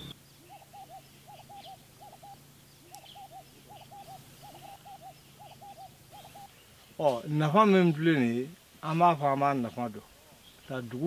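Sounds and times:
bird calling with wavering notes: 0.0 - 7.1
faint high chirps: 0.0 - 7.2
fainter lower bird call: 0.0 - 8.0.

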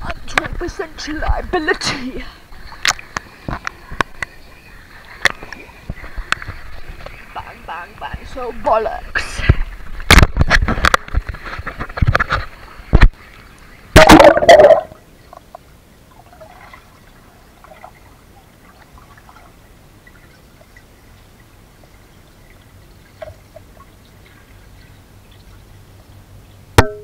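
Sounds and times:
pool water splashing: 0.6 - 27.0
muffled underwater hush: 1.3 - 8.5
small underwater bubbling: 14.0 - 15.0.

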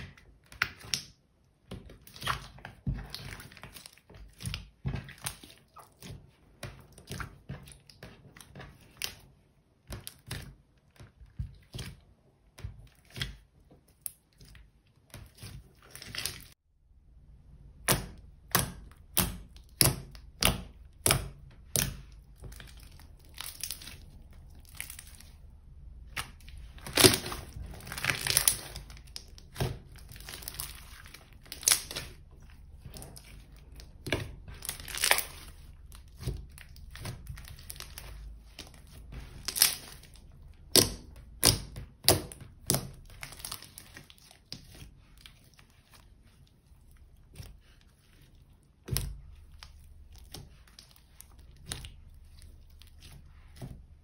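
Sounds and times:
slime popping and crackling: 17.8 - 45.8.

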